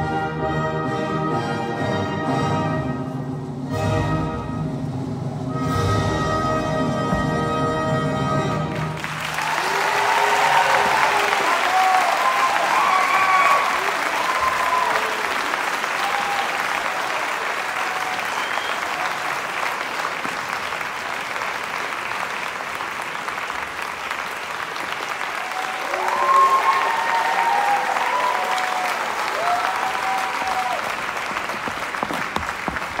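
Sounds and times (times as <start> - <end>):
audience applauding: 8.5 - 33.0
high cheering voices: 9.0 - 20.0, 25.0 - 31.5.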